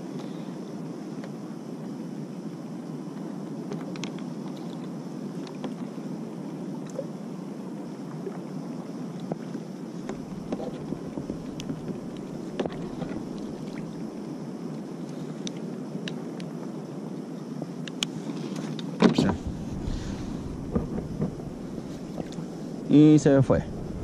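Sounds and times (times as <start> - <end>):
small ticks: 3.1 - 5.8, 10.0 - 13.9, 14.7 - 16.5, 17.7 - 18.9
sea water washing around kayak: 7.8 - 16.4, 18.1 - 24.0.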